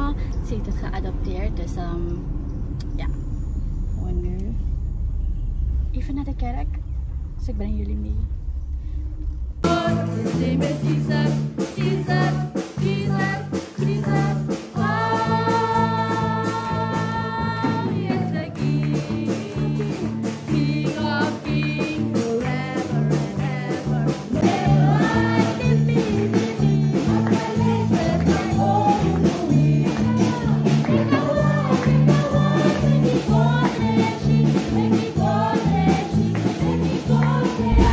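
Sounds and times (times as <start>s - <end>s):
women singing into microphones: 9.6s - 37.9s
repeating bass line: 37.6s - 37.9s.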